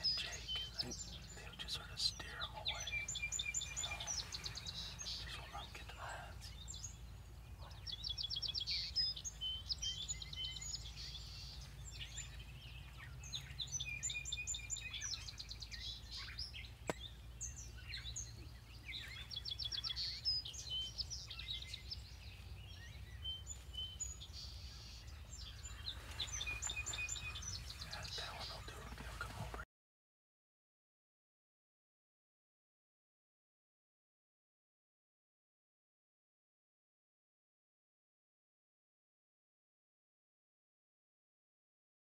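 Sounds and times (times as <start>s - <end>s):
bird trill: 0.0s - 29.3s
low background rumble: 0.0s - 29.6s
songbirds singing: 0.0s - 29.6s.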